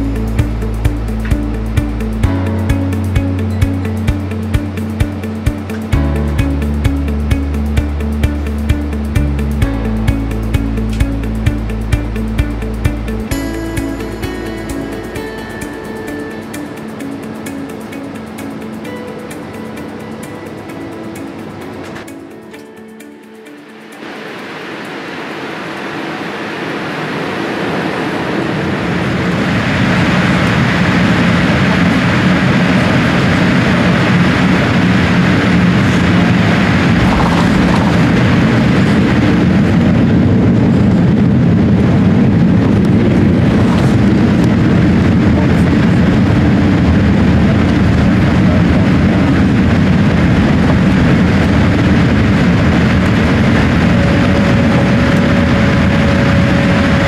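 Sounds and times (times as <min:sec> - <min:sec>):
faint steady whine: 0:00.0 - 0:57.0
airplane cabin rush on runway: 0:23.9 - 0:57.0.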